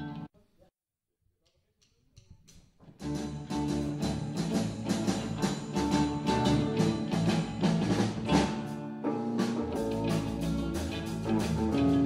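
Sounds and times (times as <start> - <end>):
bass guitar: 0.0 - 0.3, 3.0 - 12.0
drum kit beat: 3.0 - 12.0
electric guitars: 3.0 - 12.0.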